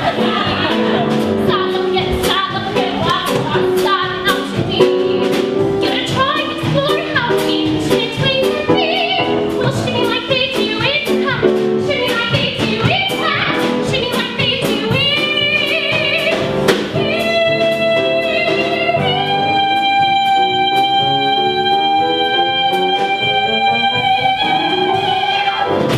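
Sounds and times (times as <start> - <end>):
instrumental accompaniment: 0.0 - 25.9
woman singing: 0.0 - 25.9.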